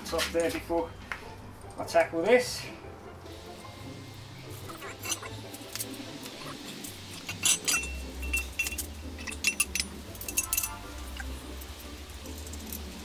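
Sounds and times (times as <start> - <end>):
background music: 0.0 - 13.0
metallic clinks of nuts and fittings: 7.1 - 13.0.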